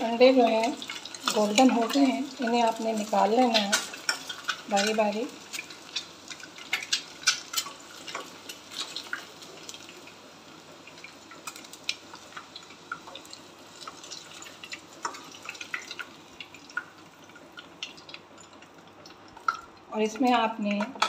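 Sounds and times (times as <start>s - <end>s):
hot oil sizzling: 0.0s - 21.0s
oil popping and crackling: 0.0s - 21.0s.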